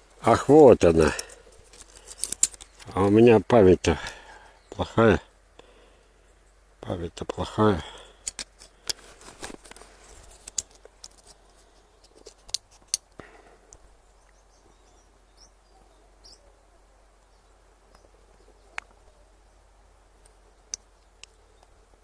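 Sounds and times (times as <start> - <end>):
plastic label crackling: 1.0 - 3.2
faint bird chirps: 13.9 - 19.8.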